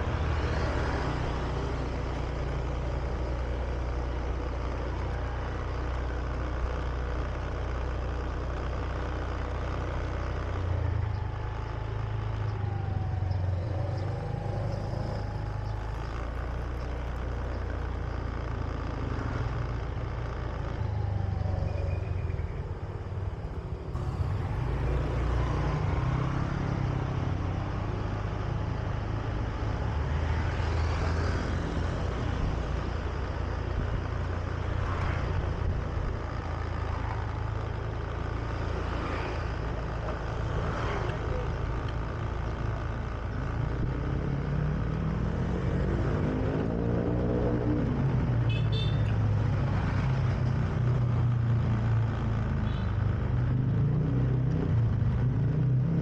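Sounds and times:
scooter engine running: 0:00.0 - 0:28.8.

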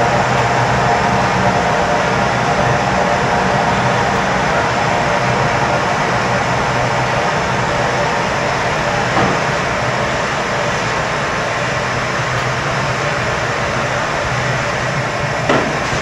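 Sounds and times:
gas flame roaring: 0:00.0 - 0:16.0.

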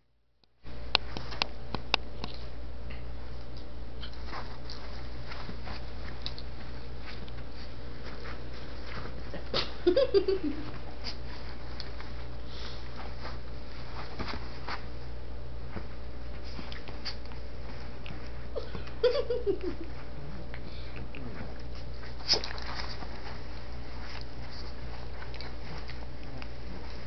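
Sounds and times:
steady low hum: 0:00.0 - 0:27.0
dogs scuffling and clicking: 0:01.0 - 0:02.5, 0:03.3 - 0:09.6, 0:10.6 - 0:19.0, 0:21.0 - 0:27.0.

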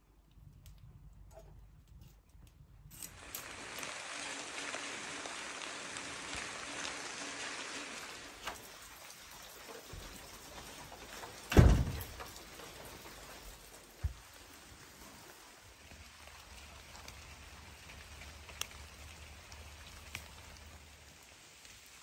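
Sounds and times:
rain hissing: 0:03.0 - 0:22.0
loud thump: 0:11.6 - 0:12.0.

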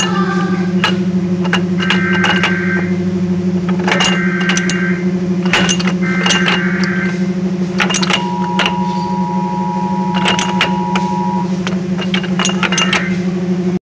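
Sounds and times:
metallic clicks and clunks of gears: 0:00.0 - 0:03.0, 0:03.6 - 0:13.2
lathe low hum: 0:00.0 - 0:13.8
thin steady whine: 0:00.0 - 0:13.8.

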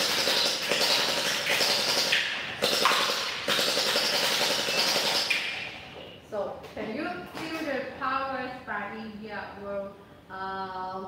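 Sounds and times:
gel blaster firing full auto: 0:00.0 - 0:05.4.

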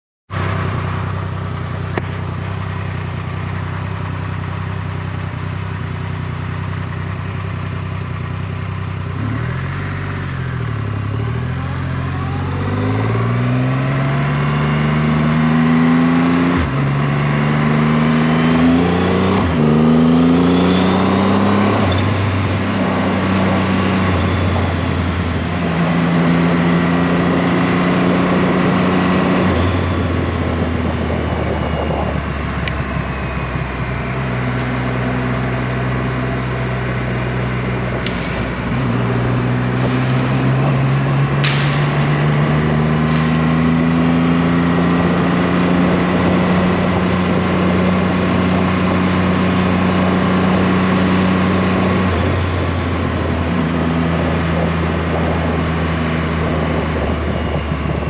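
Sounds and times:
motorcycle engine: 0:00.3 - 0:58.0
wind rush: 0:21.5 - 0:34.6, 0:37.1 - 0:58.0.

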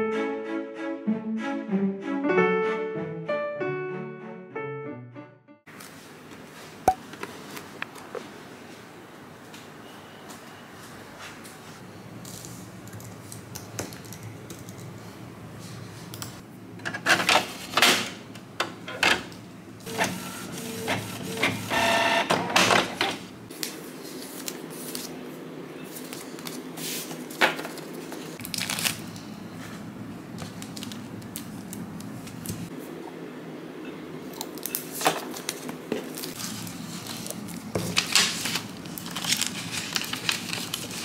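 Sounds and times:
printer clacks and whirs: 0:16.9 - 0:23.3.

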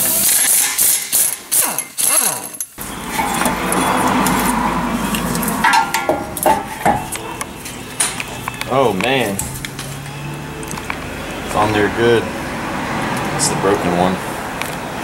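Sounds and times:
impact wrench hammering: 0:05.6 - 0:07.2.

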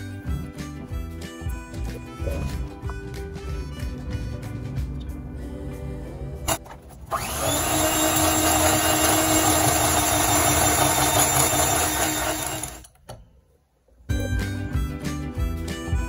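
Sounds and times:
electric hand mixer whirring: 0:06.5 - 0:12.9.

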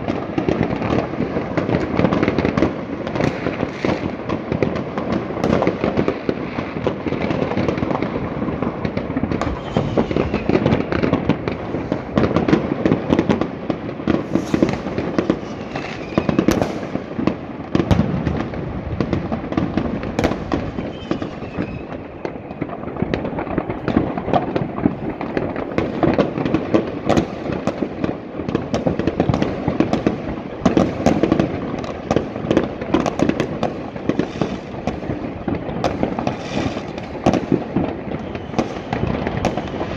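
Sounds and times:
firecracker crackle: 0:00.0 - 0:39.9
faint firework whistle: 0:03.2 - 0:04.0, 0:09.4 - 0:12.2, 0:14.2 - 0:16.9, 0:20.2 - 0:22.7, 0:36.2 - 0:37.1, 0:38.0 - 0:39.9
rocket bangs: 0:08.8 - 0:27.9.

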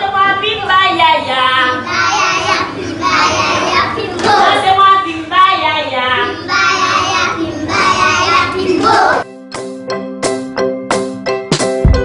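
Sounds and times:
children singing together: 0:01.8 - 0:04.6, 0:06.3 - 0:09.3.

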